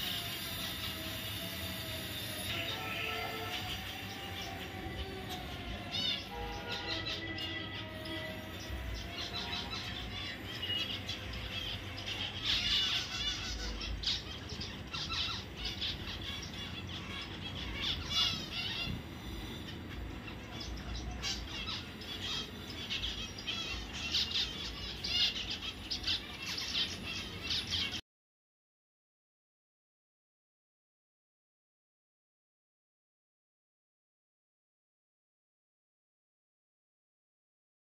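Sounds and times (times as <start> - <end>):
finches chirping: 0.0 - 28.0.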